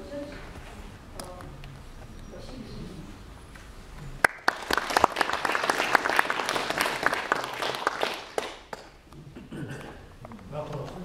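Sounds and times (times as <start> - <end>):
audience applauding: 4.2 - 9.0.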